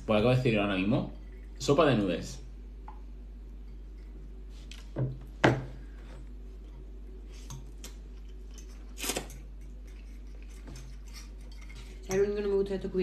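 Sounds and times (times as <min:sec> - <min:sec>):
cutlery clinking on ceramic bowls: 0:10.4 - 0:12.5.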